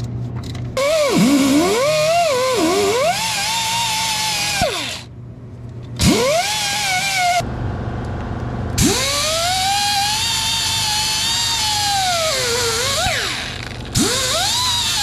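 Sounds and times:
die grinder whining: 0.8 - 5.1, 6.0 - 7.4, 8.8 - 15.0.

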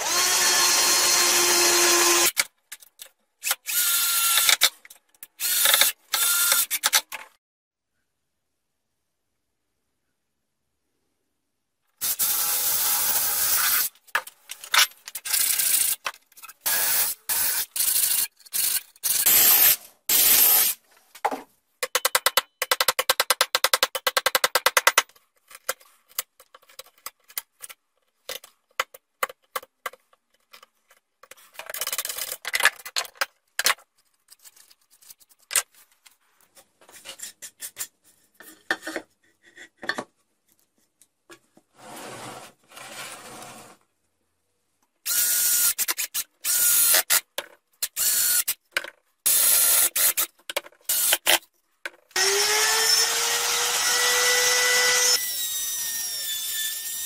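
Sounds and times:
router motor whining: 52.2 - 57.0.

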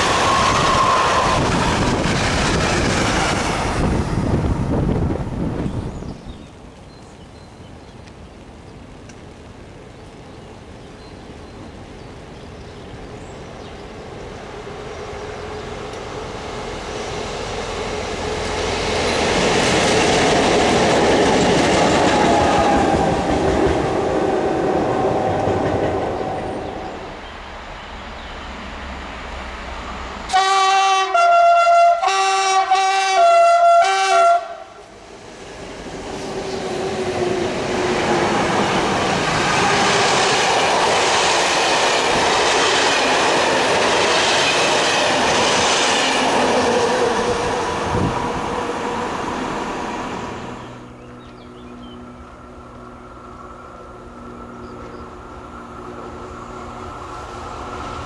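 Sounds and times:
diesel locomotives passing: 0.0 - 7.1, 9.1 - 58.0
two-tone locomotive horn blasts: 30.3 - 34.8.

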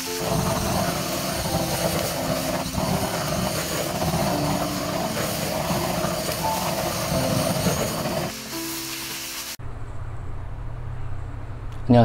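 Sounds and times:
blowtorch flame rushing: 0.0 - 9.6
pan sizzling: 0.0 - 9.6.

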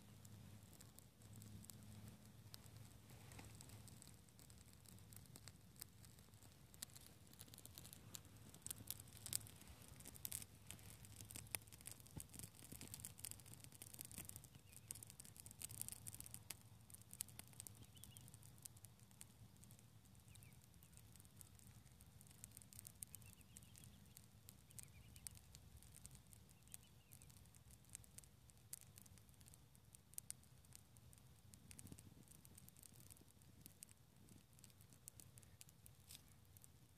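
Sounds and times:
wood fire crackling: 0.0 - 36.9
faint high chirps: 17.7 - 18.4, 20.2 - 21.0, 23.0 - 25.5, 26.5 - 27.4.

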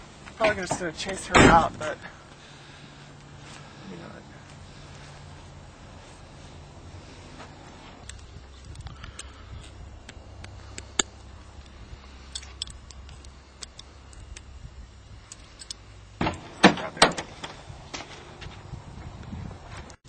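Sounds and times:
loud door knocks and clunks: 1.3 - 1.8, 16.2 - 17.3.

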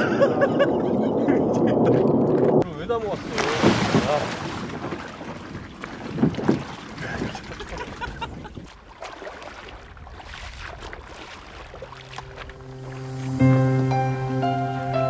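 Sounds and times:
water sloshing and splashing: 1.8 - 13.4
soft music: 11.9 - 15.0.

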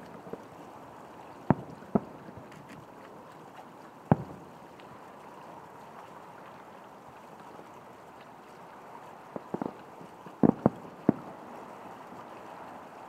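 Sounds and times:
firework shells booming: 4.1 - 4.4, 10.4 - 11.3.

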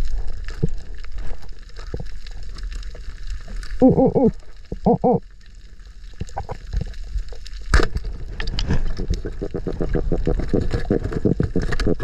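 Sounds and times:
small clicks underwater: 0.0 - 3.8, 4.4 - 12.0
muffled vocal hums underwater: 3.8 - 5.3, 8.9 - 12.0.

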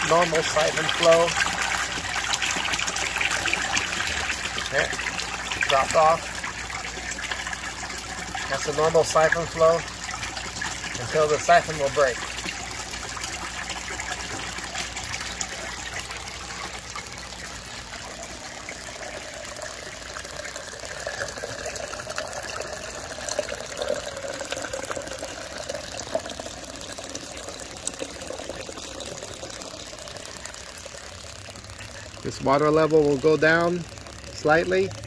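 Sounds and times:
water pouring from pipe into tank: 0.0 - 35.0.

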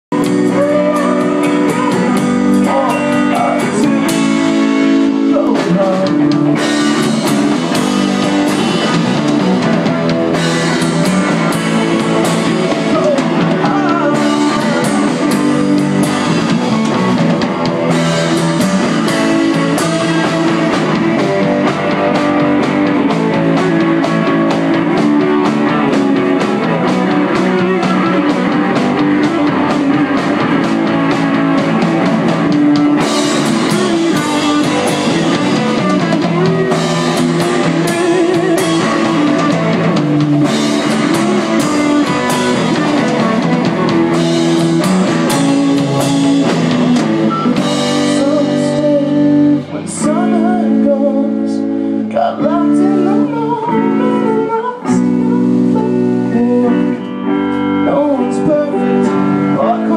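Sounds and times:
drum kit: 0.0 - 51.5
bass guitar: 0.0 - 59.9
electric guitars: 0.0 - 59.9
man singing: 0.1 - 7.5, 11.4 - 17.0, 18.2 - 22.3, 25.4 - 30.6, 33.3 - 39.8, 44.6 - 59.9.

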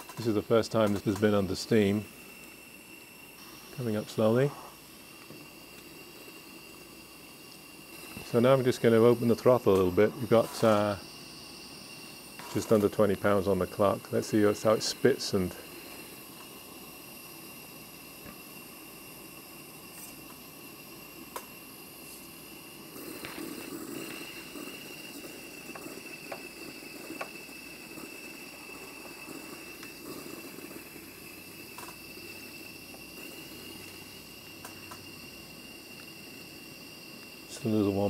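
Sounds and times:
gas blowlamp rushing: 0.0 - 38.0
steam hissing and spitting: 0.0 - 38.0
thin high whistle: 17.6 - 38.0
small clicks and ticks: 31.8 - 32.0.

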